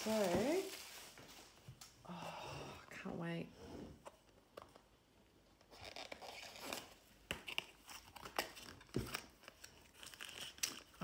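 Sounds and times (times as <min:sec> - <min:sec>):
cardboard and paper rustling: 0:00.0 - 0:01.8, 0:05.6 - 0:11.0.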